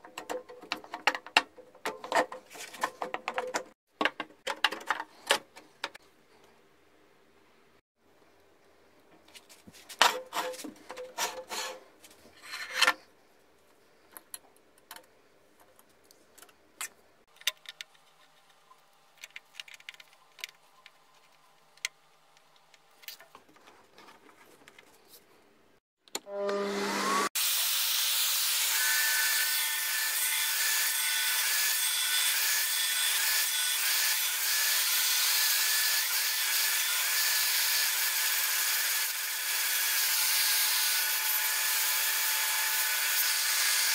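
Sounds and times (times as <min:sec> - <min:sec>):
knocks and clicks of handled parts: 0:00.0 - 0:06.0, 0:14.1 - 0:18.6
bandsaw cutting wood: 0:26.3 - 0:43.9.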